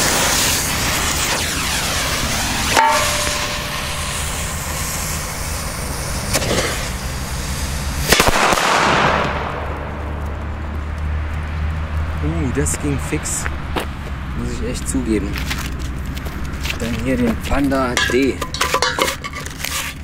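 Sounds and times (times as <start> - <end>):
firecrackers banging: 0.0 - 19.6
dense crackle: 0.0 - 20.0
short metallic ring: 2.8 - 4.4.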